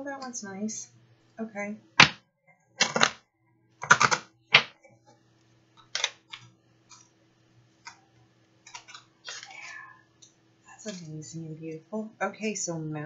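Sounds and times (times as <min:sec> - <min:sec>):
cards shuffling: 0:02.8 - 0:03.2, 0:03.8 - 0:04.7, 0:08.7 - 0:09.7.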